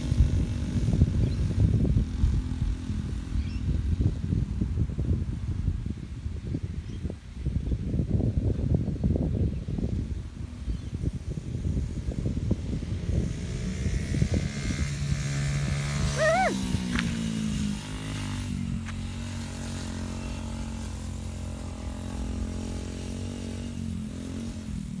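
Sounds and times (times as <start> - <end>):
small motorbike engine running: 0.0 - 5.9, 9.8 - 25.0
rising-and-falling call: 16.1 - 16.7.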